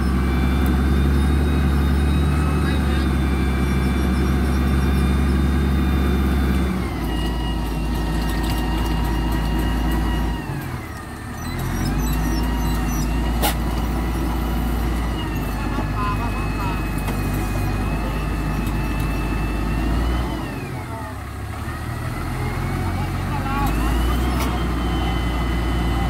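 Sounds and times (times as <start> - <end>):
grader diesel engine running hard: 0.0 - 26.0.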